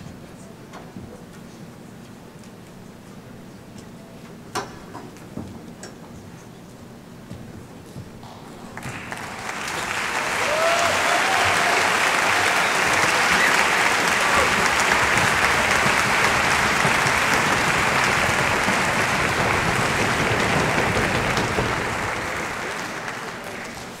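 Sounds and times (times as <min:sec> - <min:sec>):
audience applause: 0:08.8 - 0:24.0.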